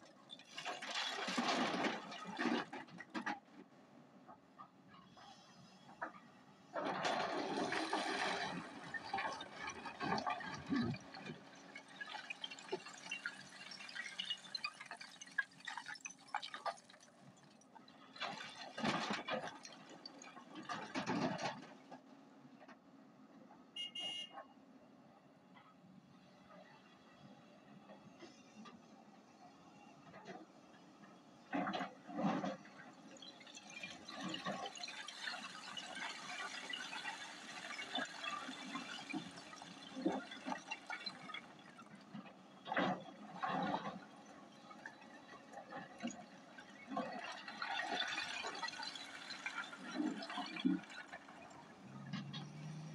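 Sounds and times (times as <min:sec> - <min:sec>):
rocks pouring into truck bed: 0:00.5 - 0:02.9, 0:06.8 - 0:17.0.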